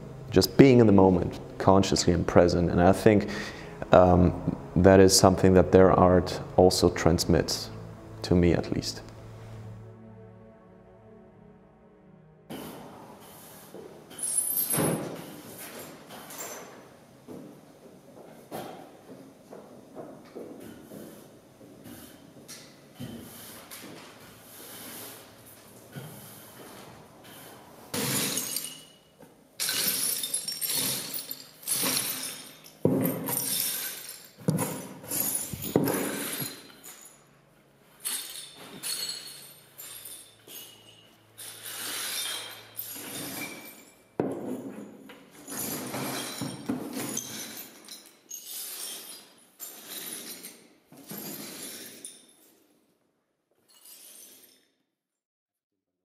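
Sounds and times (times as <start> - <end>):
broom sweeping broken glass: 12.5 - 16.6, 27.9 - 37.2, 38.0 - 44.0, 45.4 - 52.6, 53.7 - 54.6.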